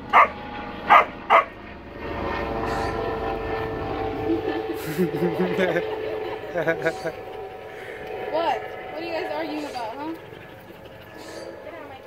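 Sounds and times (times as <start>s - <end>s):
engine drone: 0.0s - 12.0s
dog barking: 0.1s - 1.5s.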